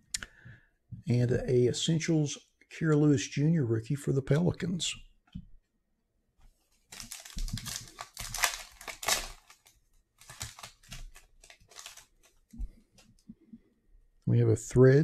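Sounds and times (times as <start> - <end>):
foil wrapper crinkling and tearing: 6.9 - 12.5.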